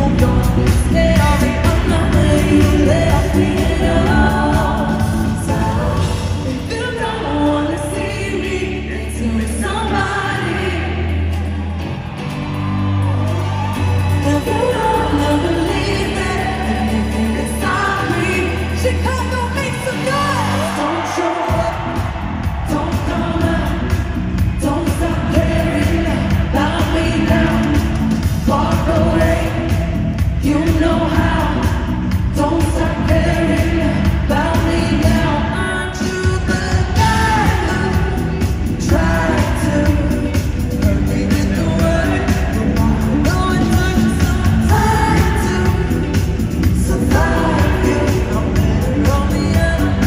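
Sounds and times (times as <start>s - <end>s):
woman singing: 0.0s - 11.8s, 12.9s - 50.0s
live band with dance beat: 0.0s - 50.0s
sustained bass line: 0.0s - 50.0s.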